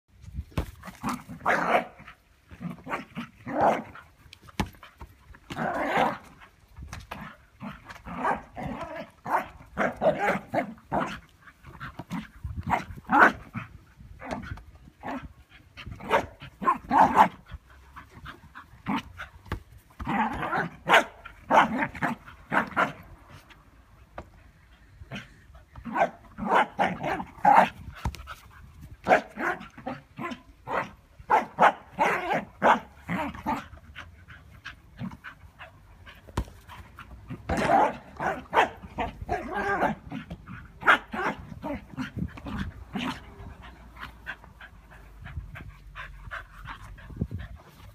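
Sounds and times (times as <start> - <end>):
dog barking: 20.8 - 21.8, 30.7 - 32.9, 37.6 - 38.8.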